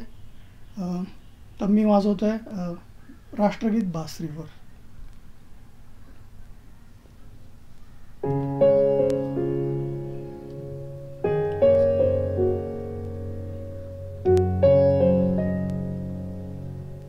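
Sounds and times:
keyboard playing slow chords: 8.2 - 17.0.

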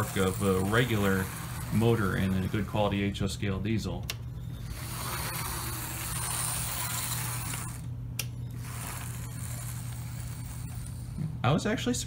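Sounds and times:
model train motor humming: 0.0 - 3.3, 4.5 - 7.9, 8.5 - 11.2
gear whirring: 0.0 - 11.2.

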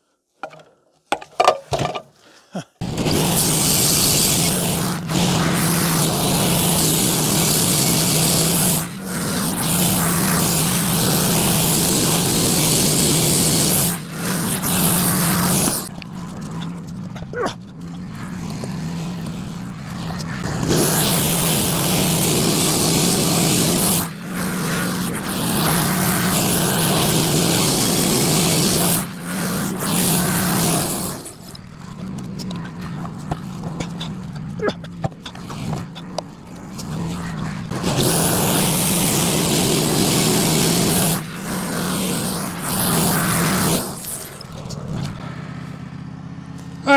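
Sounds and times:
bandsaw blade cutting log: 2.8 - 45.2
low engine hum: 42.9 - 46.9.

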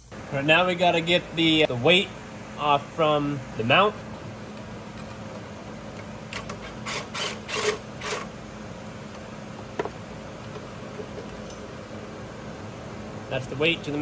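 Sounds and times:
faint steady hum: 0.0 - 14.0
ratchet wrench ratcheting: 6.3 - 8.3.

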